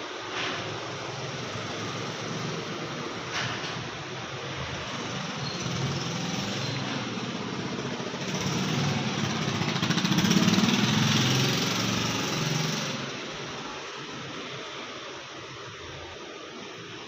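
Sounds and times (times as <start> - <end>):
small engine droning: 5.0 - 14.4.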